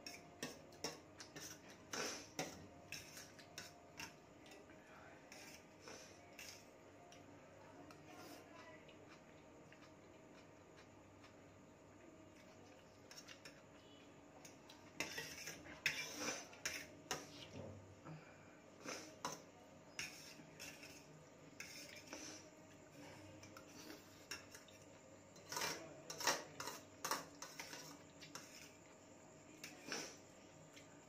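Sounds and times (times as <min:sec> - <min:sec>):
fork scraping metal plate: 0:00.0 - 0:04.2, 0:05.3 - 0:06.7, 0:14.9 - 0:17.4, 0:18.8 - 0:22.4, 0:25.4 - 0:28.8.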